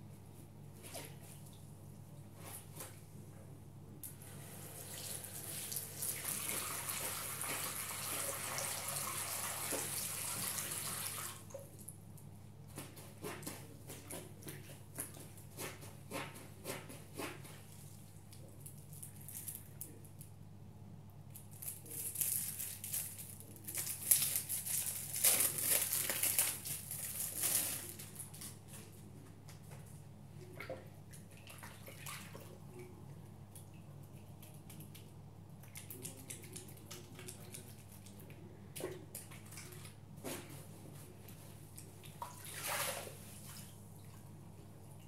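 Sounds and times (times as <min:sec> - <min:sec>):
wet sponges squelching in water: 0:38.9 - 0:44.3.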